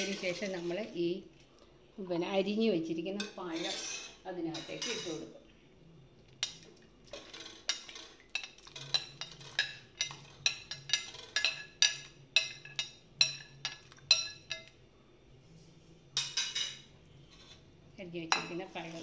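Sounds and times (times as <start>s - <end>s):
spoon clinking on glass plate: 7.7s - 14.7s.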